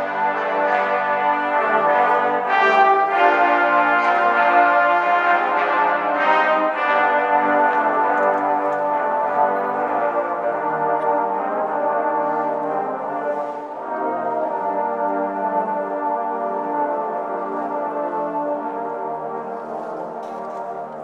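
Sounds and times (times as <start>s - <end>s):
trombone ensemble fanfare: 0.0s - 21.0s.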